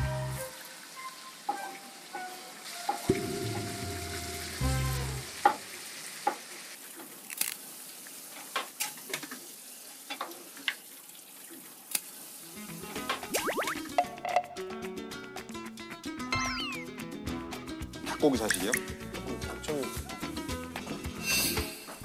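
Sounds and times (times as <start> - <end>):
food sizzling in a pan: 0.4 - 13.7.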